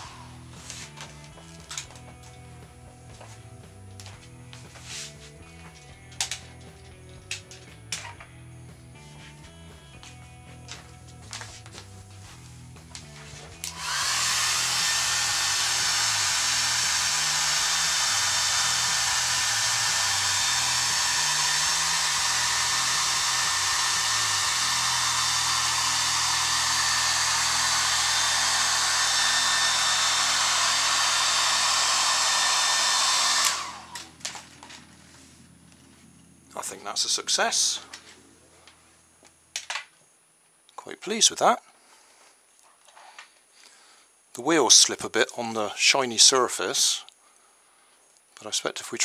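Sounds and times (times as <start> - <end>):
hair dryer blowing: 0.0 - 2.1, 13.1 - 34.5.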